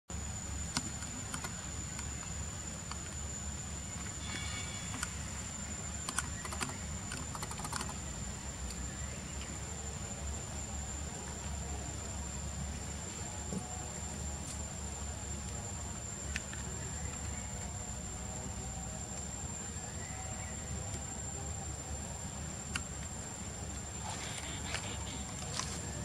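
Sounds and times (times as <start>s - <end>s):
high-pitched insect drone: 0.2s - 26.0s
sharp clicks: 6.0s - 8.0s.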